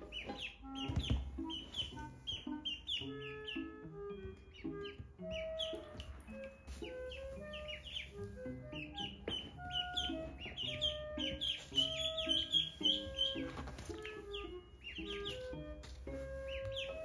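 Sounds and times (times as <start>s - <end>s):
background music with held notes: 0.0s - 17.0s
ducklings peeping: 0.0s - 17.0s.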